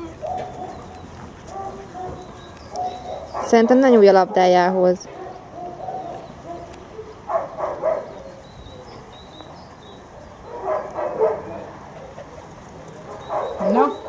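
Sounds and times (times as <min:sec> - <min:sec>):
dog barking: 0:01.5 - 0:04.5, 0:05.1 - 0:08.3, 0:10.5 - 0:11.8, 0:13.2 - 0:14.0.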